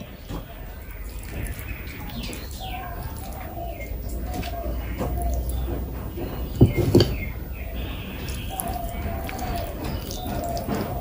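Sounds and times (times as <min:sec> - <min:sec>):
faint wet clicks: 0:00.0 - 0:11.0
wet squishy eating sounds: 0:00.0 - 0:11.0
loud low knocks: 0:05.0 - 0:07.8.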